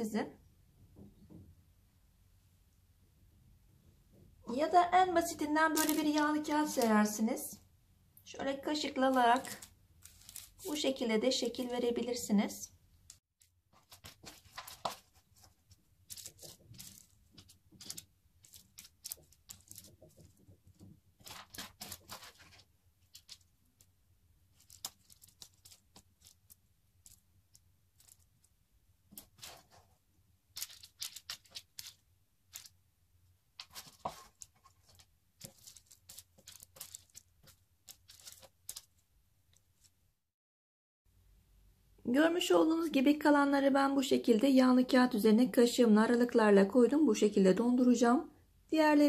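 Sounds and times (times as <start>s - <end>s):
parchment paper crinkling: 5.2s - 7.2s, 8.7s - 11.9s, 13.1s - 32.8s, 33.5s - 40.0s
coated cornflakes crackling: 5.7s - 7.2s, 8.8s - 11.7s, 16.0s - 20.3s, 21.2s - 23.5s, 24.5s - 28.5s, 30.5s - 32.8s, 33.6s - 39.0s.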